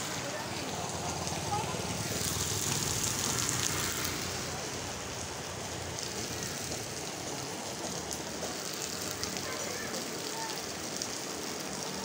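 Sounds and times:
rain falling on wet street: 0.0 - 12.0.

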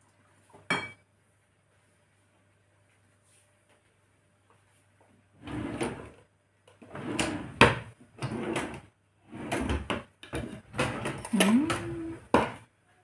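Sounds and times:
kitchen items sliding and rattling: 5.4 - 6.2, 6.8 - 12.2.

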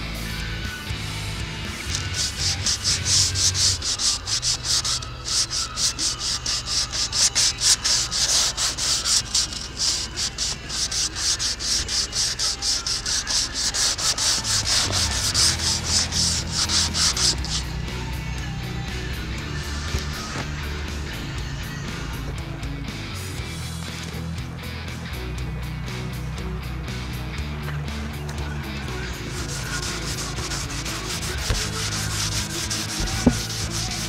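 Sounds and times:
rapid rubbing strokes: 1.6 - 18.2, 18.8 - 22.2, 29.0 - 34.0.

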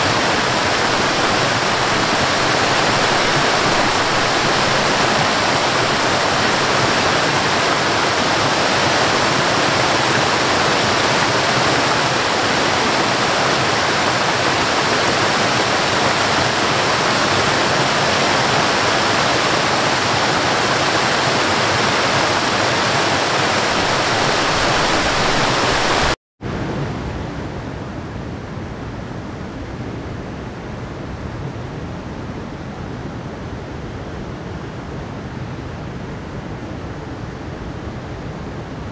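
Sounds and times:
stream running over rocks: 0.0 - 26.2
waterfall rushing: 0.0 - 26.2.

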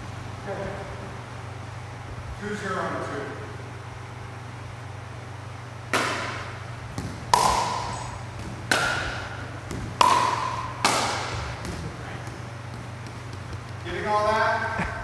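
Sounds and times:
paddles hitting plastic ball: 5.9 - 14.4.

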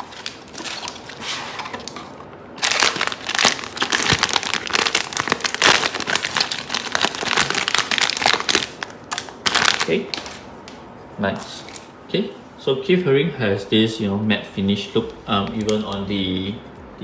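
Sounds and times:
plastic packaging crinkling: 0.0 - 10.5.

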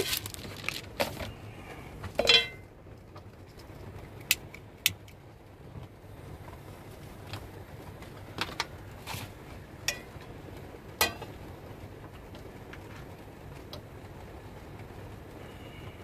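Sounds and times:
steady low hum: 0.0 - 16.0
frying pan knocking on metal: 11.0 - 11.3.

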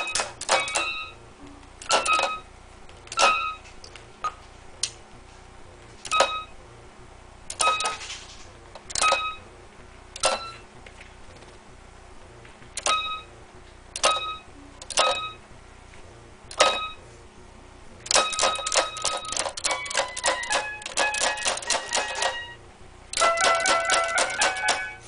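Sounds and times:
toy keyboard beeping notes: 0.0 - 1.2, 1.8 - 2.5, 3.1 - 3.6, 6.0 - 6.5, 7.5 - 8.0, 8.9 - 9.4, 10.2 - 10.6, 12.8 - 13.2, 14.0 - 15.4, 16.5 - 17.0, 18.1 - 25.0.

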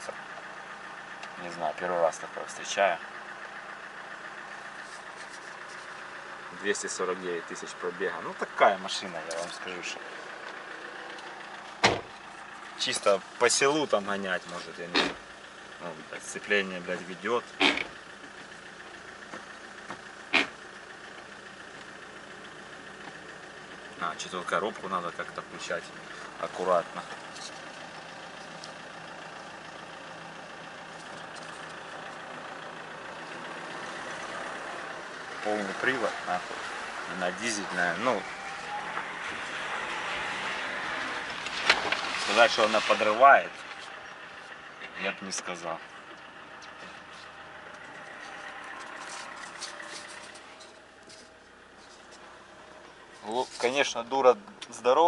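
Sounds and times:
diesel engine humming: 0.0 - 55.0
light rattles: 45.4 - 53.9.

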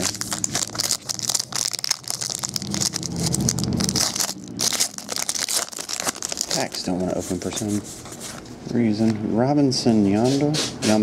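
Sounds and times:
plastic wrapper crinkling and tearing: 0.0 - 7.6.

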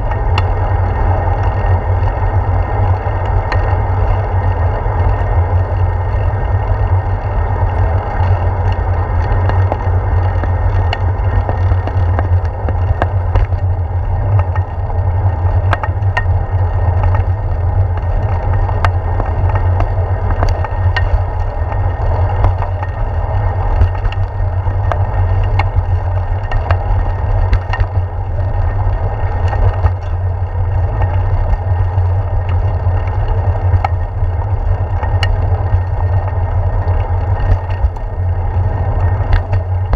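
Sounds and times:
bicycle clicks and rattles: 0.0 - 39.9
wind and vibration rumble: 0.0 - 39.9.

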